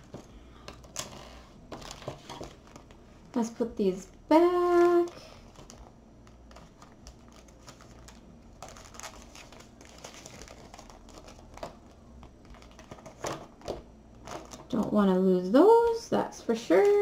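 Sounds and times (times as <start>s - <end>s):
plastic bags crinkling: 0.0s - 3.0s, 4.5s - 14.9s.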